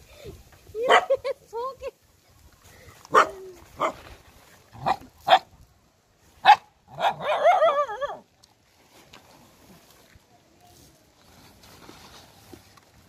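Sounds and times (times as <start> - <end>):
dogs barking: 3.1 - 4.0, 4.8 - 5.5, 6.4 - 7.8.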